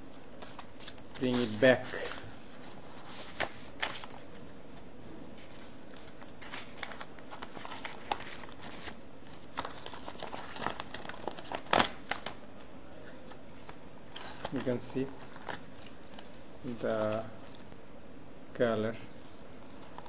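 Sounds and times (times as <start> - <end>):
plastic packaging crinkling: 5.5 - 12.4, 14.1 - 17.7.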